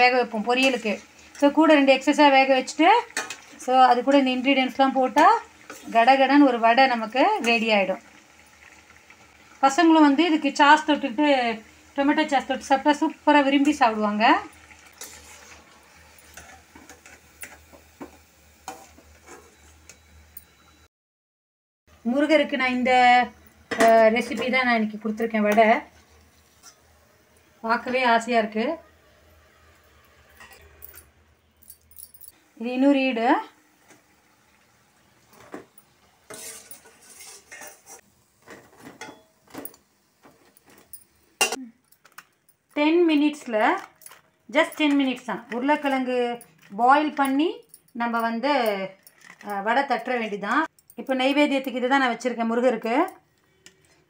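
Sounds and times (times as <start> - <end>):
faint sizzle of deep-frying: 0.0 - 20.9, 21.9 - 30.8, 32.3 - 54.0
spoon scraping a metal plate: 14.9 - 17.7, 18.7 - 20.1, 36.3 - 39.2.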